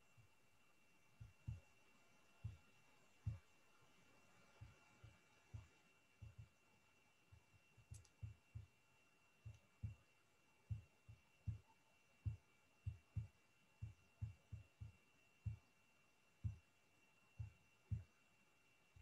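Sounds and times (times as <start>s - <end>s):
faint low thumps: 3.2s - 3.5s, 4.5s - 6.6s, 7.3s - 8.8s, 9.4s - 10.1s, 10.7s - 15.7s.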